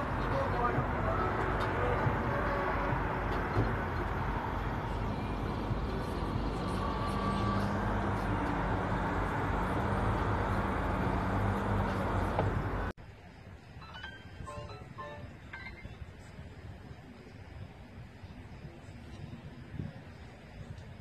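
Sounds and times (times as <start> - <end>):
rushing noise: 0.0 - 12.9
vehicle engine running: 0.0 - 12.9.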